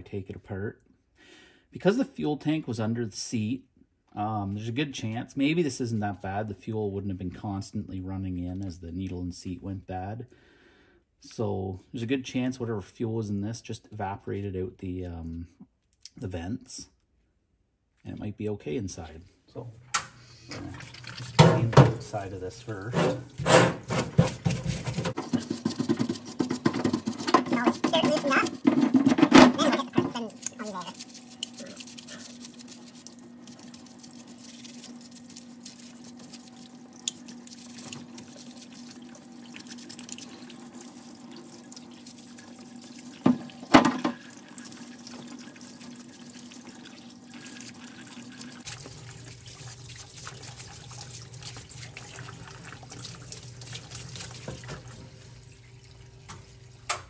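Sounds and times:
cleaning fluid spraying: 29.4s - 48.9s.

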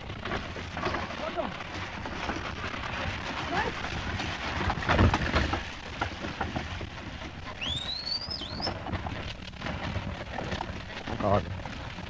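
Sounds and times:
wagon clicks and rattles: 0.0s - 12.0s
rising whistle: 7.6s - 8.7s.

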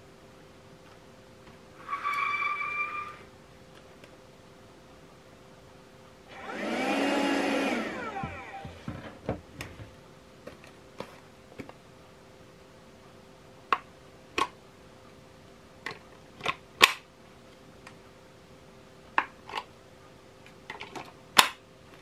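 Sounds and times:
window vacuum suction motor: 6.3s - 9.0s.

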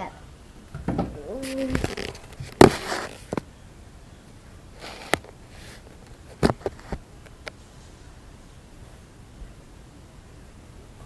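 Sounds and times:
soft breath near microphone: 4.8s - 6.0s.

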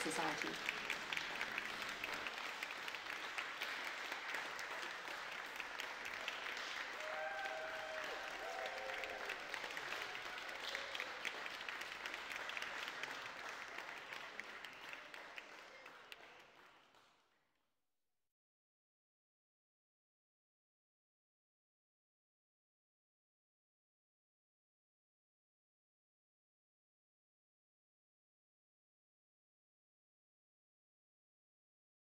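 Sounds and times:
audience applauding: 0.0s - 17.2s.

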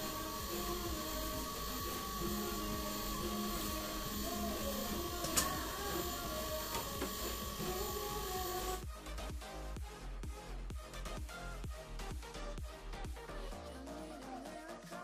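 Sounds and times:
appliance whirring: 0.0s - 8.8s.

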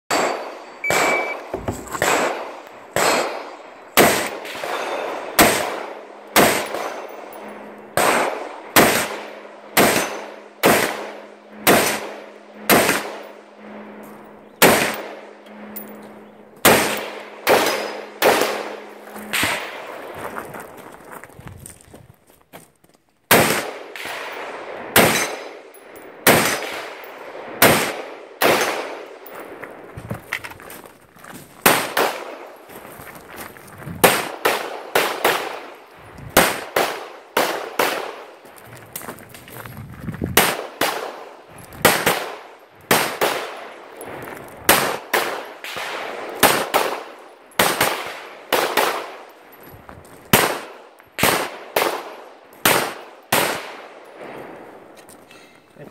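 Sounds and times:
gunshots with short echo: 0.1s - 7.1s.

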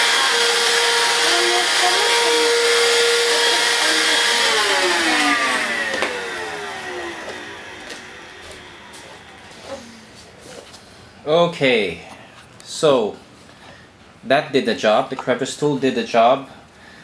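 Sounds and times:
stick vacuum motor whine: 0.0s - 10.7s.

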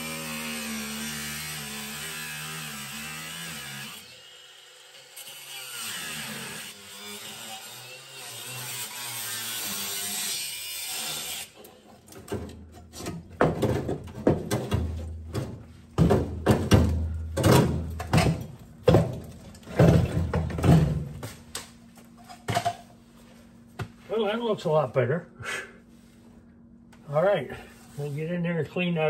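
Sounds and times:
angle grinder cutting sheet metal: 0.0s - 11.8s
metal clanks and scrapes: 11.6s - 23.0s.

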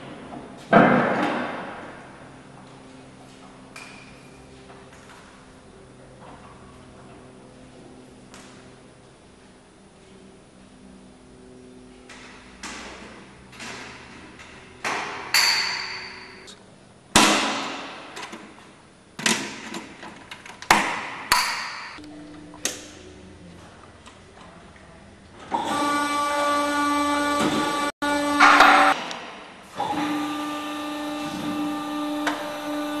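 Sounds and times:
metallic clanks and knocks: 12.1s - 16.5s
electric motor whine: 25.5s - 28.9s, 29.8s - 33.0s.

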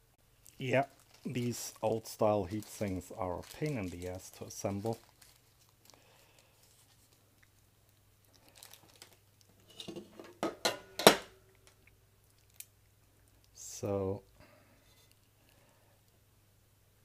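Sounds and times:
plastic bag crinkling: 0.4s - 9.4s.

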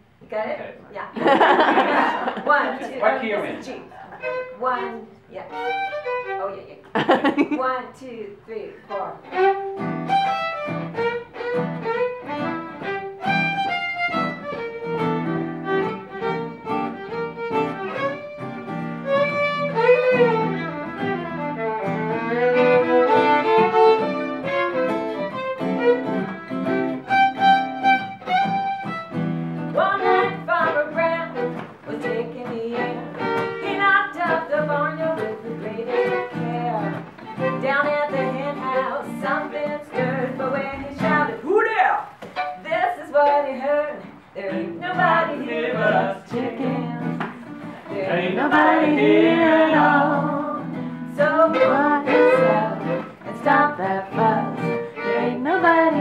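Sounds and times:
fiddle playing a tune: 2.9s - 7.2s, 8.8s - 56.0s.

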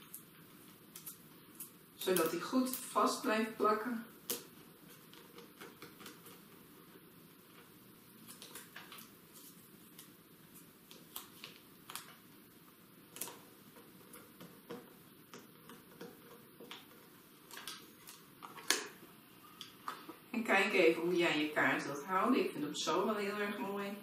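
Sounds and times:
hands handling paper cards: 4.1s - 19.0s.

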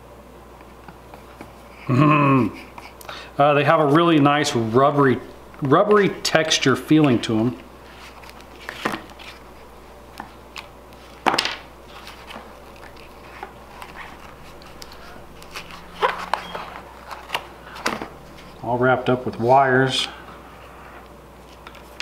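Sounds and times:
earphone packaging handling noise: 6.9s - 20.4s.

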